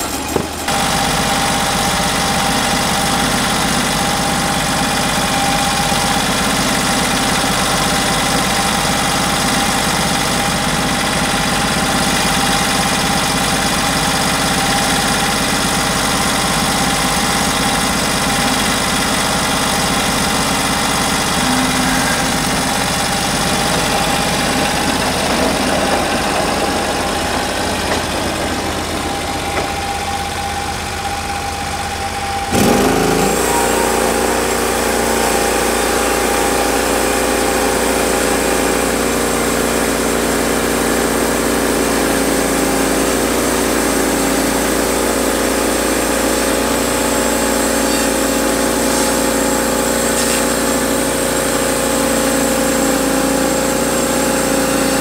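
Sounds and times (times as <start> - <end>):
sawmill engine running: 0.0 - 55.0
band blade sawing log: 18.1 - 28.6, 32.5 - 55.0.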